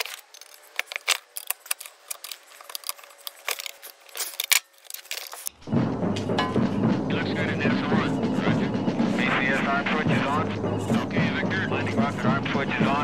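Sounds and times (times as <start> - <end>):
metal tools clinking: 0.0 - 5.5.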